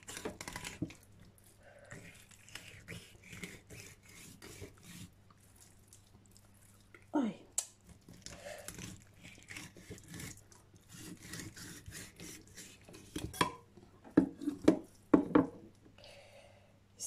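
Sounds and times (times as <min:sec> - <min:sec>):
knife scraping fish: 0:00.0 - 0:01.1, 0:01.8 - 0:05.7, 0:08.1 - 0:13.5.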